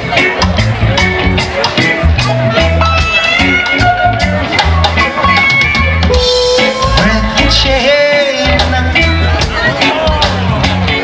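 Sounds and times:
bass line: 0.0s - 11.0s
bending lead guitar note: 0.0s - 11.0s
drum kit beat: 0.0s - 11.0s
electric guitars: 0.0s - 11.0s
keyboard: 0.0s - 11.0s.

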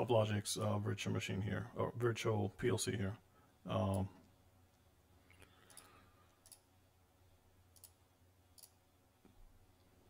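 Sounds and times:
faint low hum: 0.0s - 10.0s
computer mouse clicks: 5.4s - 6.7s, 7.7s - 8.0s, 8.6s - 8.8s.

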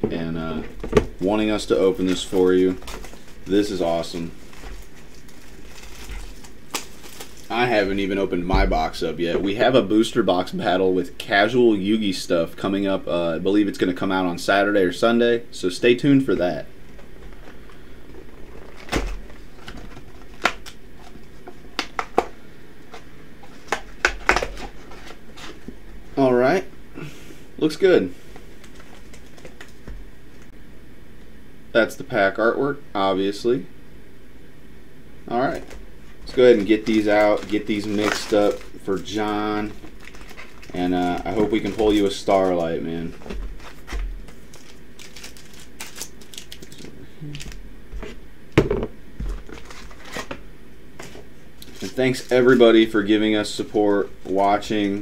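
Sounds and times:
foil packs rustling and crinkling: 0.5s - 9.7s, 16.5s - 22.3s, 22.9s - 25.8s, 28.1s - 30.0s, 35.4s - 48.2s, 49.2s - 50.4s, 51.0s - 55.0s.

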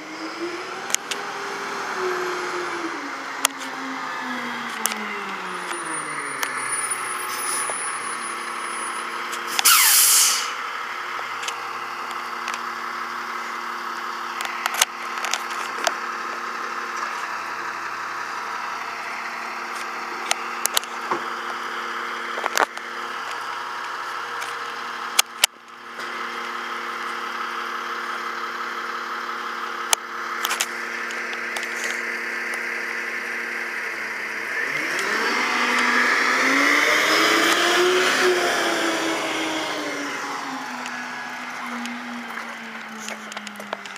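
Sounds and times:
diesel truck engine running: 0.0s - 43.9s
air hiss: 9.5s - 10.6s.

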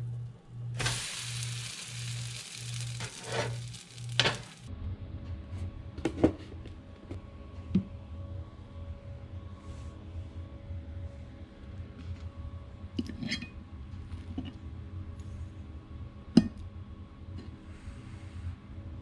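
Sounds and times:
pancake sizzling on griddle: 0.8s - 4.7s
spatula scraping hiss: 0.8s - 4.7s.

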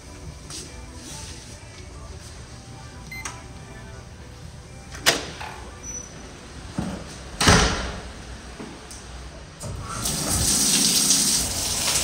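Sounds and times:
keypad beep: 3.1s - 3.4s.

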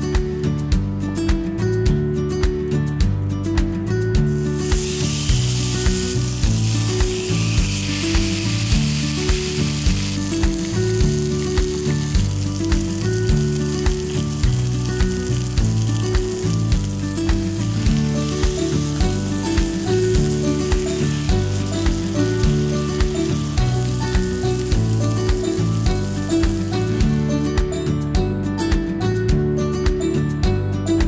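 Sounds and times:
background music: 0.0s - 31.0s
steak sizzling in frying pan: 4.3s - 27.7s.

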